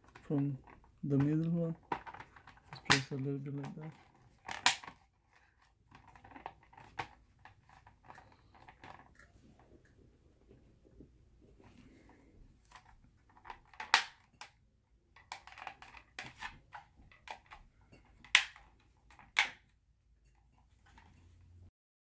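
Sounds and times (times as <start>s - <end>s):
plastic shell clicking: 18.2s - 19.7s.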